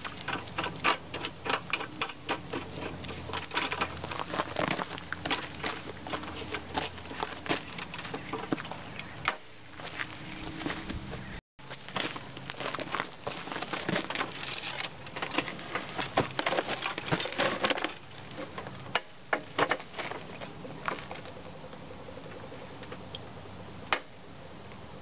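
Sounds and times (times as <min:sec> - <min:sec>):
lawn mower rattling: 0:00.0 - 0:08.9, 0:11.9 - 0:21.3
crunching on gravel: 0:00.0 - 0:21.4.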